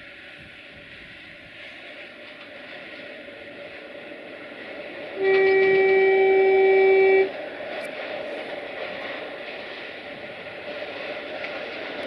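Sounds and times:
freight train running: 0:00.0 - 0:12.0
locomotive horn blast: 0:05.2 - 0:07.4.

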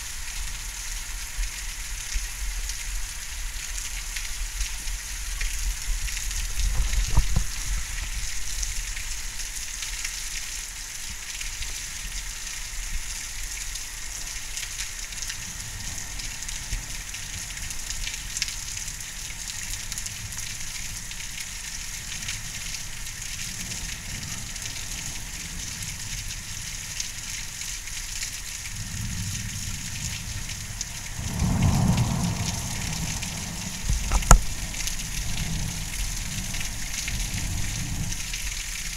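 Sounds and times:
heavy rain: 0:00.0 - 0:38.9
thunder rumbling: 0:29.0 - 0:38.2.

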